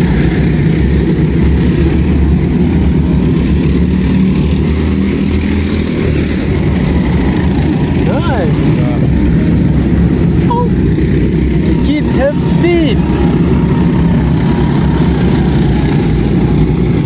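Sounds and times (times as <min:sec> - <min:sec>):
go-kart engines droning: 0:00.0 - 0:17.0.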